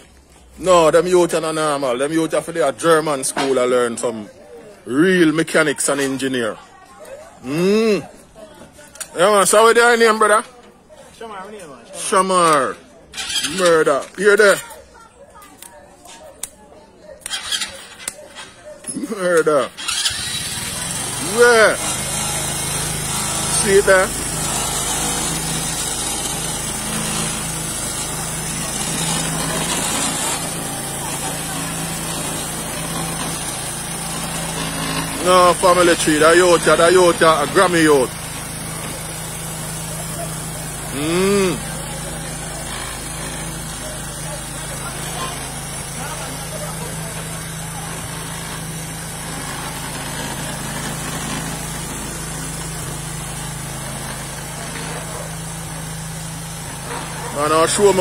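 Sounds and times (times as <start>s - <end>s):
small motorcycle engine idling: 12.5s - 15.7s, 17.1s - 58.0s.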